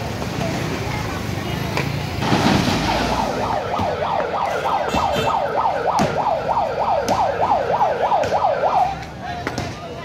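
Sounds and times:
vehicle siren yelping: 2.7s - 9.1s.

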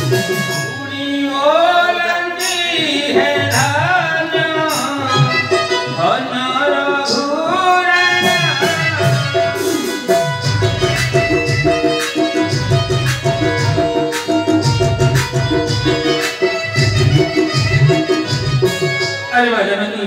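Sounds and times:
person singing: 0.0s - 10.8s
instrumental accompaniment: 0.0s - 20.0s
tabla drumming: 0.0s - 20.0s.

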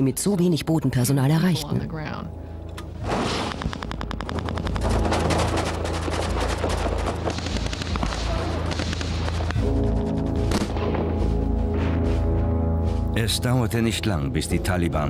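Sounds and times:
low steady drone: 1.4s - 15.0s
automatic gunfire: 3.3s - 9.6s.

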